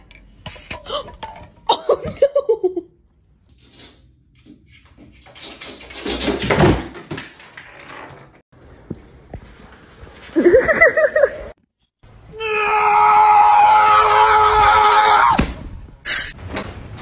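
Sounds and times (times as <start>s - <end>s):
loud steady scream: 12.3s - 15.4s.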